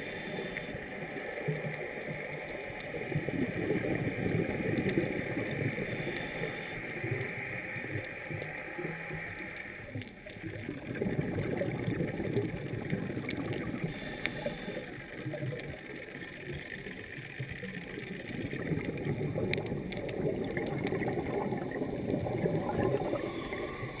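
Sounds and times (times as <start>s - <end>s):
underwater gurgling rush: 0.0s - 24.0s.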